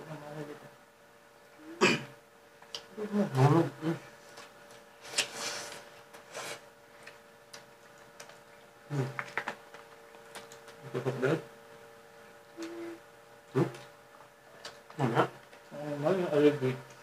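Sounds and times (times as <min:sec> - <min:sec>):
steady background hum: 0:00.0 - 0:17.0
eating clicks and smacks: 0:07.0 - 0:10.8.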